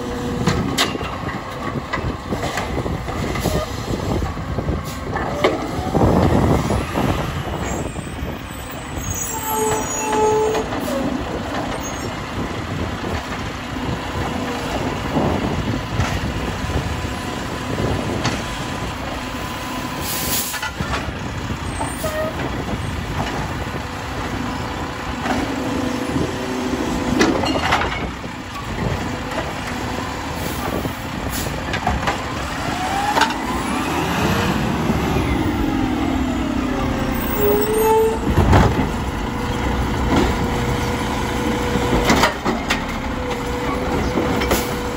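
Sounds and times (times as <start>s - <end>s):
truck engine revving: 28.2s - 44.9s.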